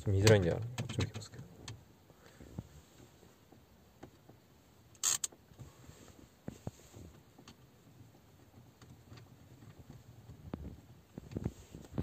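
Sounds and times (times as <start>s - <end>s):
sharp plastic rattle: 5.0s - 5.4s.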